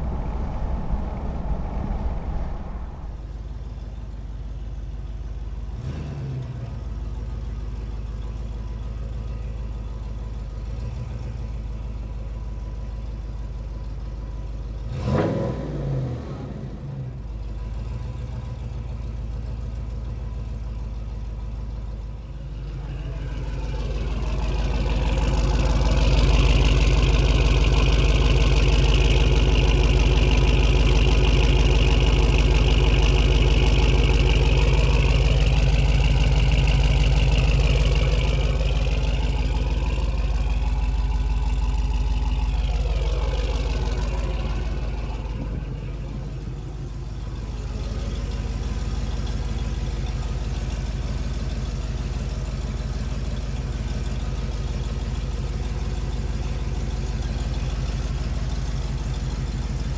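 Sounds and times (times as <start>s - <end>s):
engine idling deep exhaust rumble: 0.0s - 59.9s.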